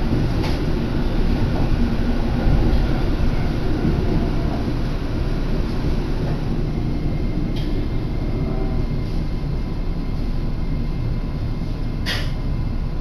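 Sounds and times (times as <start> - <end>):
train rumble from inside carriage: 0.0 - 13.0.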